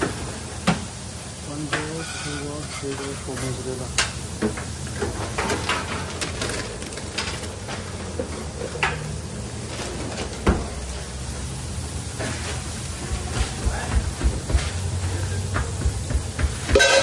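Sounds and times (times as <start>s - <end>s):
clicks and knocks of things moved: 2.8s - 9.1s.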